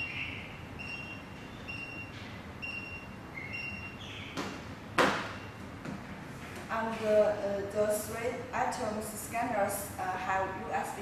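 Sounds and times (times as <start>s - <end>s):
barcode scanner beeping: 0.8s - 4.0s.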